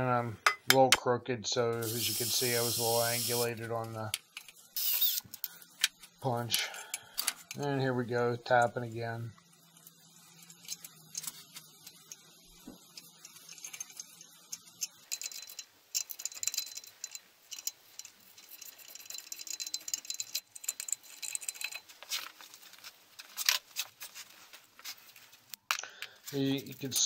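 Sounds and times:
metallic clicks and rattles of tools: 12.9 - 22.4.

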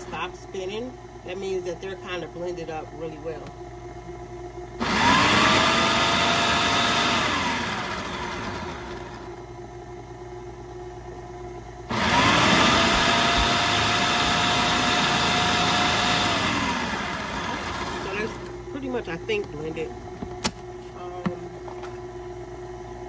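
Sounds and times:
food processor motor whine: 4.8 - 9.6, 11.8 - 18.8.

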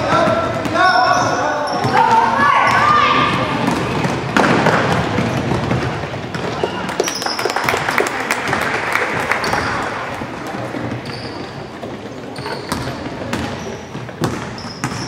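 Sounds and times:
spectators' voices: 0.0 - 14.0
sneakers squeaking: 0.0 - 15.0
basketball bouncing on wooden floor: 2.7 - 6.8, 10.3 - 15.0.

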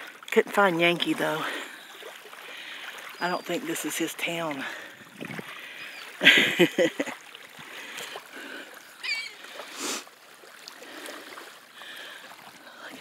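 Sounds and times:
small waves lapping on shore: 0.0 - 13.0
seagulls calling: 4.8 - 6.3, 9.0 - 9.6.

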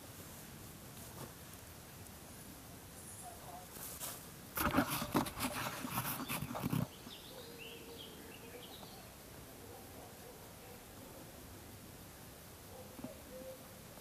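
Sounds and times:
camera handling rustling: 4.6 - 6.9
faint bird chirps: 6.2 - 10.0, 12.7 - 13.8.

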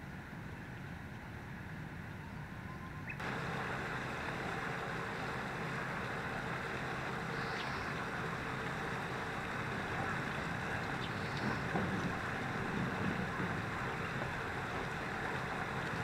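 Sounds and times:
faint high chirp: 2.2 - 3.2
flowing water rushing: 3.2 - 16.0.

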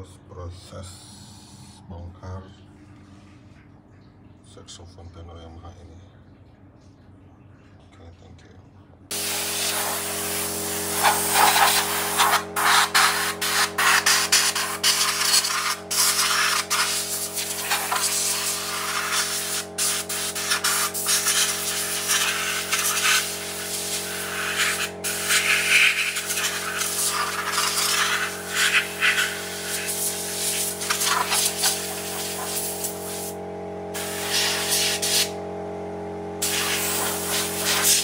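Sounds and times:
steady low hum: 0.0 - 38.0
air blow gun hissing: 9.1 - 33.4, 34.0 - 35.4, 36.4 - 38.0.

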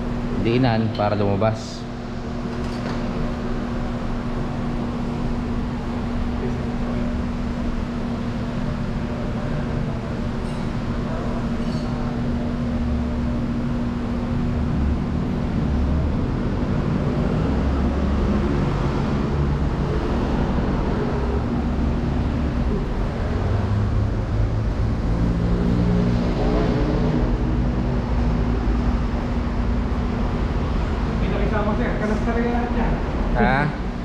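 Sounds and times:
mechanical hum: 0.0 - 34.0
steady drone: 3.2 - 34.0.

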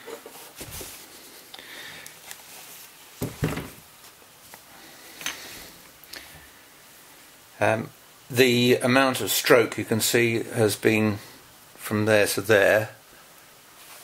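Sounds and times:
tool thumping on bench: 3.2 - 3.8.

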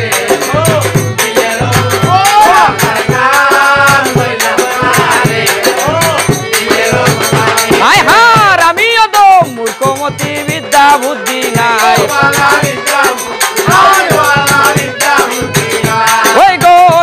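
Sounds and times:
fast rattling percussion: 0.0 - 17.0
winding folk melody: 0.1 - 17.0.

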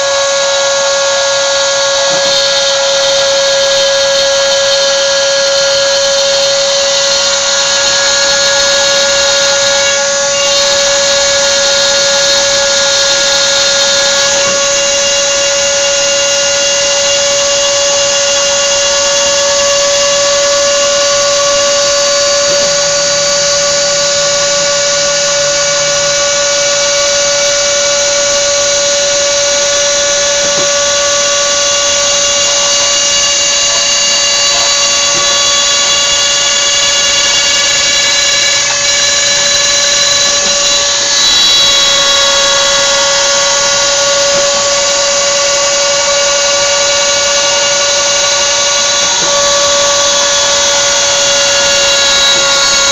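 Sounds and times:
rotary tool whining: 0.0 - 52.9.

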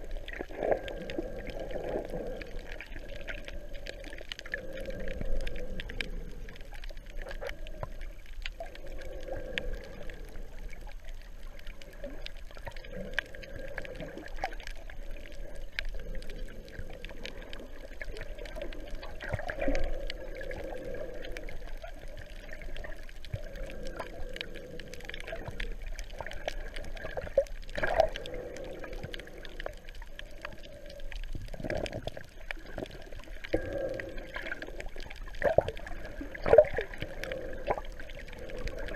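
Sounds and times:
underwater sloshing and gurgling: 0.0 - 38.9.

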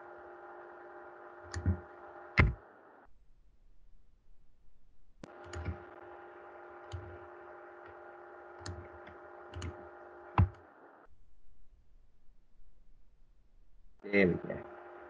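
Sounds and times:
low electrical hum: 0.0 - 15.0
computer mouse clicks: 1.4 - 1.8, 5.2 - 6.0, 6.8 - 8.0, 8.6 - 10.6.

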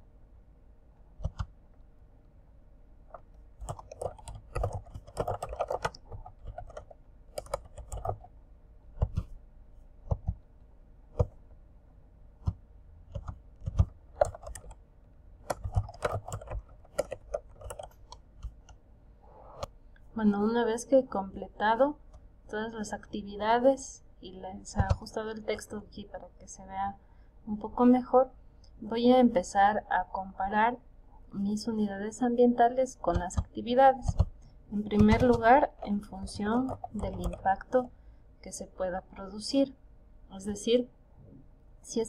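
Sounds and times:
typing on computer keyboard: 1.2 - 1.5, 3.1 - 8.3, 12.4 - 14.8, 15.4 - 18.8, 24.7 - 25.2, 33.1 - 37.8.

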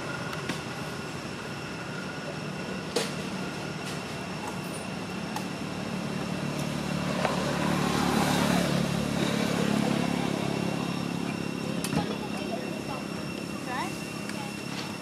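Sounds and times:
high-pitched hum: 0.0 - 15.0
motor vehicle passing by: 5.5 - 14.0.

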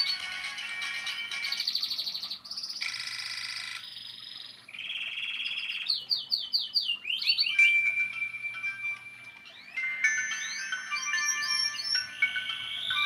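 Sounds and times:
mobile phone ringtone melodies: 0.0 - 2.0, 2.8 - 3.9, 7.4 - 13.0.

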